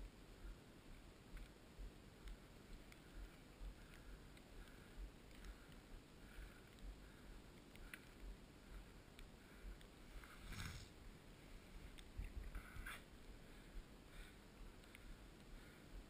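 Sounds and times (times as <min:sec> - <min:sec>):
faint low rumbles: 0:00.0 - 0:16.0
faint ticks: 0:00.3 - 0:11.0, 0:11.8 - 0:16.0
soft short rustles: 0:10.1 - 0:13.1.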